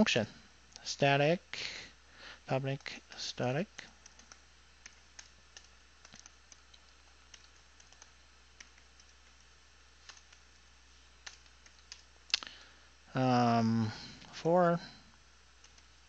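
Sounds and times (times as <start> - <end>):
steady low hum: 0.0 - 16.0
keyboard keystrokes: 4.0 - 9.4, 11.2 - 12.1.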